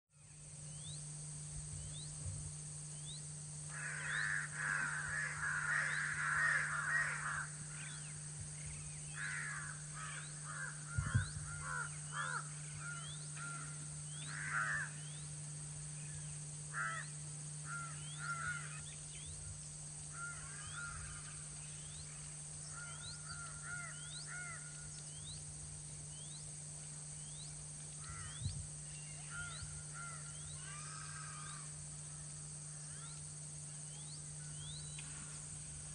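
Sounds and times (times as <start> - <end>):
insect chirps: 0.1 - 35.9
low hum: 0.1 - 35.9
crows cawing: 3.7 - 8.0, 9.1 - 15.1, 16.7 - 18.8, 20.1 - 21.6, 22.7 - 24.9, 28.0 - 28.4, 29.2 - 31.8.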